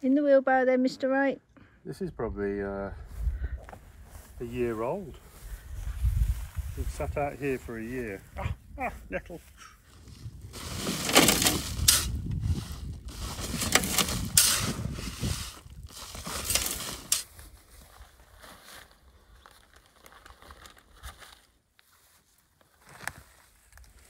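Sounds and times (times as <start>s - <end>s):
shovel scraping gravel: 10.2s - 17.3s.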